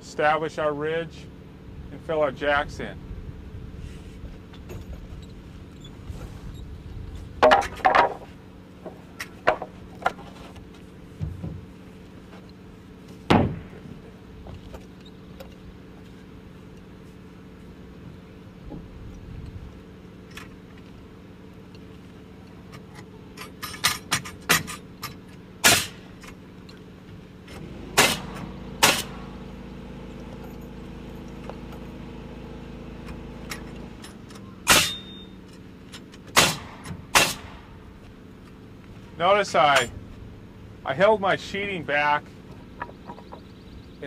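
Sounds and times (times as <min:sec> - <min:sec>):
machine hum: 0:01.0 - 0:44.0
wooden rafters knocked into place: 0:13.3 - 0:13.8.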